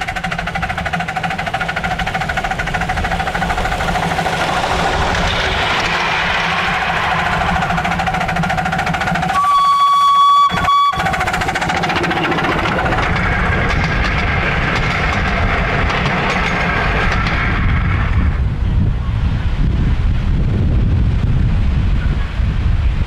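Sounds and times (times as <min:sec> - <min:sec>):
miniature locomotive rumbling: 0:00.0 - 0:23.0
miniature locomotive whistle: 0:09.2 - 0:11.4.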